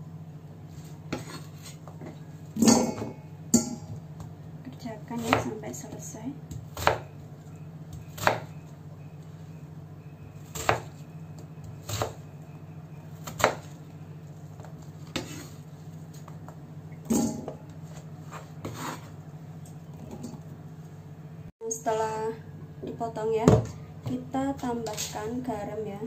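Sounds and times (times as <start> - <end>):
knife chopping on wooden board: 1.1 - 1.7, 6.5 - 7.1, 7.9 - 8.5, 10.4 - 11.0, 11.6 - 12.2, 13.2 - 13.7, 18.3 - 19.1.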